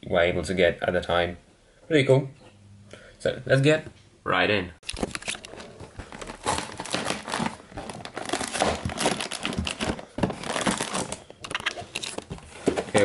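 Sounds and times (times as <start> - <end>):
cardboard box being opened: 5.0 - 13.0.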